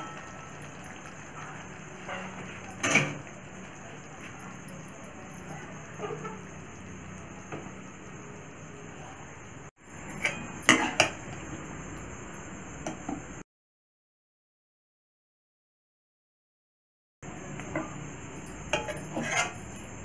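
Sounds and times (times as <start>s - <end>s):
metal pan clattering: 0.0s - 3.4s, 10.1s - 11.2s.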